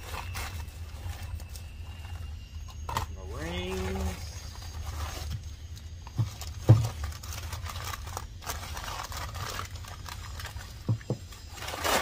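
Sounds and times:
paper and plastic mailer rustling: 0:00.0 - 0:12.0
dull thumps: 0:06.1 - 0:07.2, 0:10.8 - 0:11.4.

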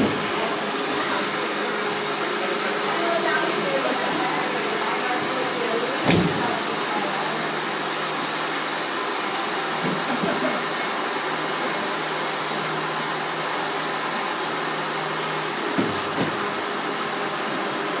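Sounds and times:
thumps on training mats: 0:06.0 - 0:06.5, 0:15.8 - 0:16.4.

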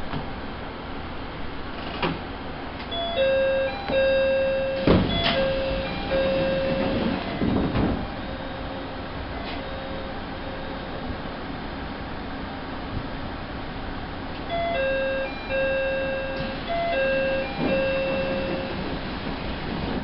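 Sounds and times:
railcar rumble: 0:00.0 - 0:20.0
electronic chime melody: 0:02.9 - 0:06.9, 0:14.5 - 0:18.8
clunks: 0:04.8 - 0:08.1, 0:16.2 - 0:20.0.

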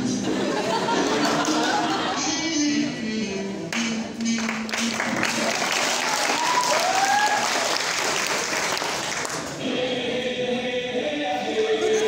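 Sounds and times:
audience clapping and cheering: 0:03.7 - 0:09.6
shouts and whoops: 0:05.9 - 0:07.7
background music: 0:09.5 - 0:12.0.

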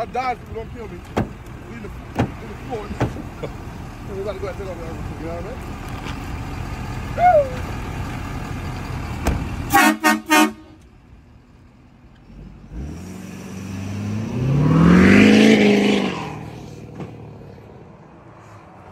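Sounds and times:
truck horn blasts: 0:09.7 - 0:10.8
diesel engine revving hard: 0:12.3 - 0:17.7.

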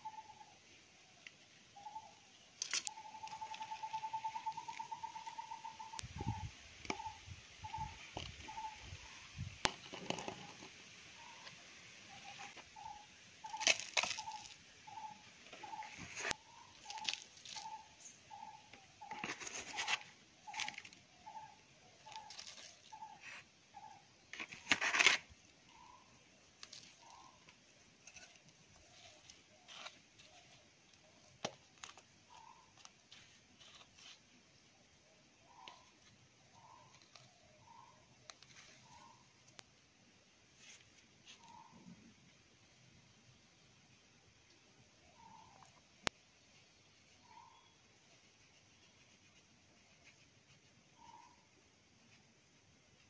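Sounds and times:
soil scratching and crumbling: 0:12.2 - 0:23.5, 0:24.3 - 0:25.9, 0:26.6 - 0:34.3.

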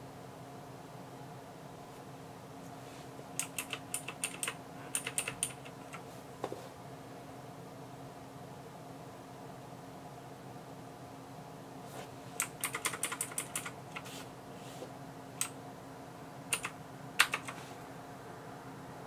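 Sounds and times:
mechanical keyboard keys clacking: 0:03.4 - 0:06.0, 0:12.4 - 0:14.0, 0:16.5 - 0:17.6.

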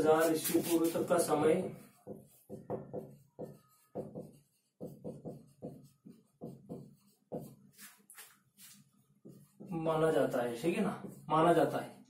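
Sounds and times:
marker scratching on whiteboard: 0:00.0 - 0:12.0
marker squeak: 0:02.3 - 0:06.2.

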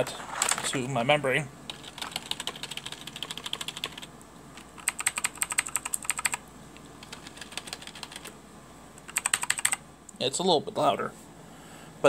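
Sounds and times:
clicky mechanical keyboard typing: 0:01.7 - 0:06.4, 0:07.0 - 0:08.3, 0:09.0 - 0:09.8
soft keyboard typing: 0:01.7 - 0:06.4, 0:07.0 - 0:08.3, 0:09.0 - 0:09.8.

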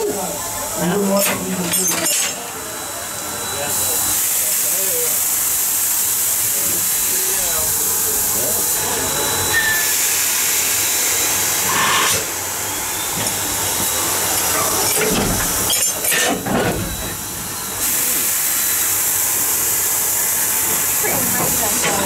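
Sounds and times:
train hissing: 0:00.0 - 0:22.0.

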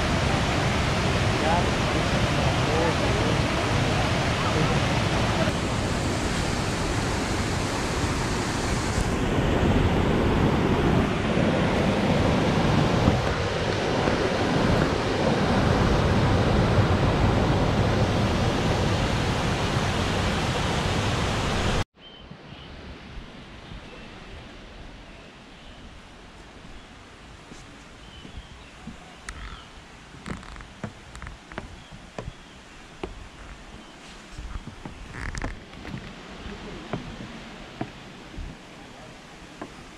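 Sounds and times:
waterfall rushing: 0:00.0 - 0:21.8, 0:36.1 - 0:39.9
faint high chirp: 0:22.0 - 0:22.8
forest background: 0:22.0 - 0:39.9.

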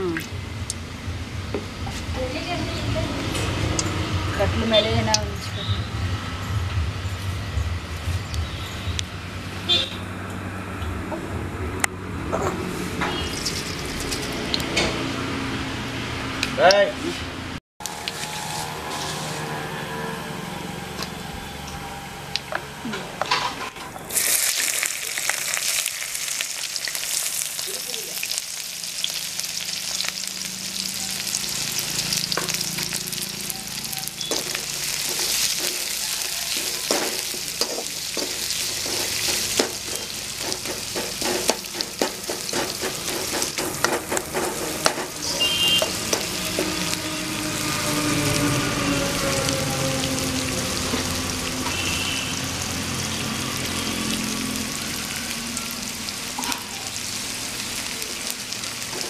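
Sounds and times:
onions sizzling in hot oil: 0:13.1 - 0:14.7, 0:17.8 - 0:19.1, 0:24.0 - 0:59.0
metal spoon scraping a pan: 0:34.2 - 0:47.4.

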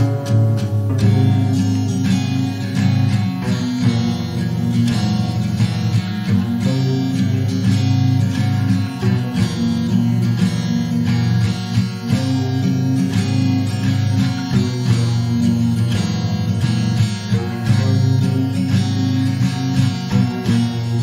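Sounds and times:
instrumental music with plucked notes: 0:00.0 - 0:21.0.

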